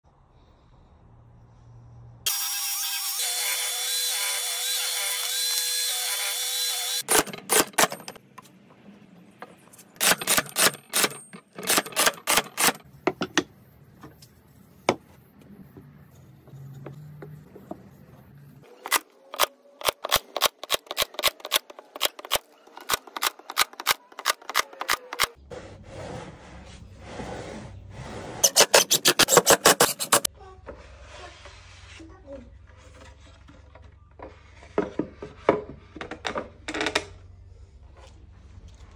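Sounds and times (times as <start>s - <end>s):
table saw cutting board: 2.3s - 8.2s, 25.5s - 30.3s
nail gun firing: 6.5s - 8.2s, 10.0s - 12.8s, 28.4s - 30.3s.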